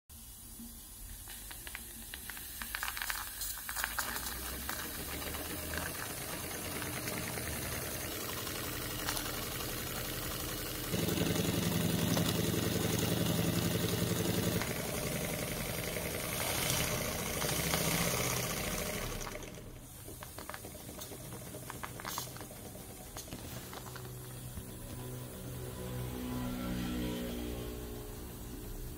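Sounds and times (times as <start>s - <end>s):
steam hissing: 0.1s - 25.6s
model steam engine rattling: 3.8s - 24.5s.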